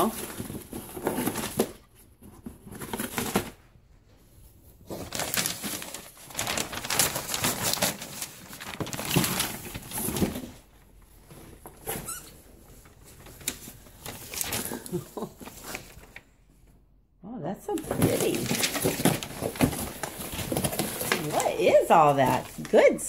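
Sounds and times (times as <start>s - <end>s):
cardboard and tissue paper rustling: 0.0s - 16.6s, 17.7s - 23.0s.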